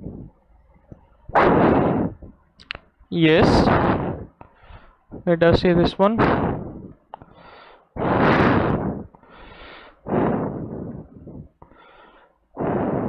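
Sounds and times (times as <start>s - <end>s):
person breathing: 3.6s - 5.2s, 6.3s - 13.0s.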